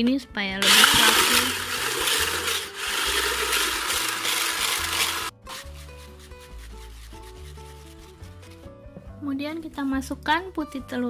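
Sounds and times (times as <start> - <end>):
soft background music: 0.0 - 2.6, 4.6 - 11.0
electric hand blender whisking: 0.6 - 8.0
whisk scraping bowl: 0.6 - 8.8.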